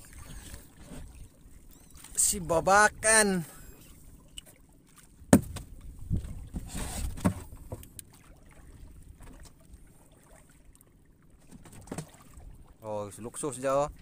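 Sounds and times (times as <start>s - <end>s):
dull thumps: 5.3s - 5.7s
sharp knock on wooden boat: 5.3s - 5.7s.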